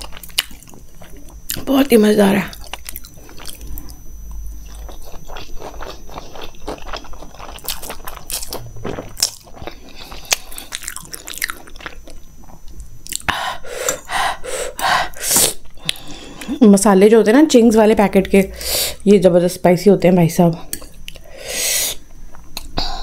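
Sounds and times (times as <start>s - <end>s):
person chewing food: 0.0s - 1.7s, 2.5s - 14.1s.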